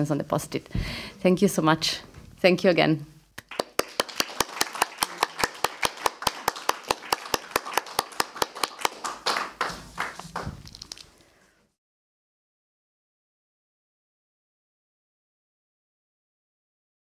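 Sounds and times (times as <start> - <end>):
audience applauding: 3.4 - 10.8.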